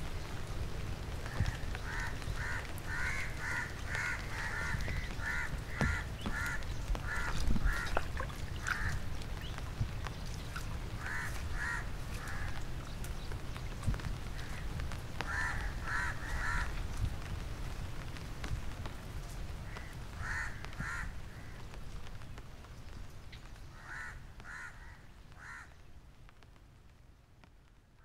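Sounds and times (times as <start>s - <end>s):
crows cawing: 1.2s - 9.0s, 11.0s - 12.7s, 15.2s - 16.8s, 19.7s - 21.6s, 23.7s - 25.8s.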